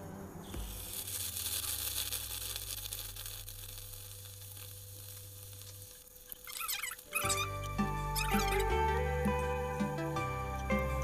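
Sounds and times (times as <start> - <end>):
batter sizzling in hot oil: 0.4 - 8.9.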